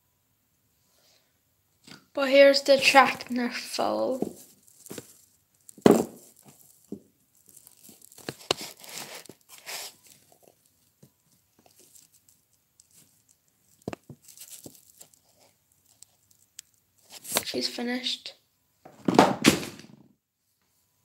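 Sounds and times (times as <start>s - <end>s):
plastic figurine handling rustles: 1.8s - 17.8s.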